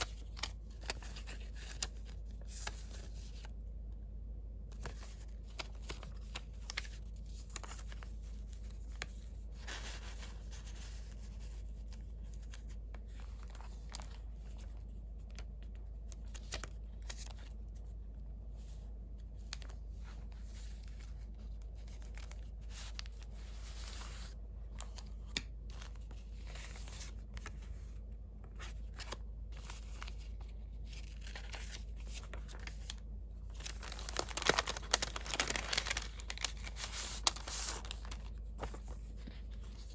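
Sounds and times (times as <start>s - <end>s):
paper envelope crinkling: 0.0s - 3.6s, 4.7s - 39.9s
paper pieces rustling and sliding: 33.5s - 39.9s.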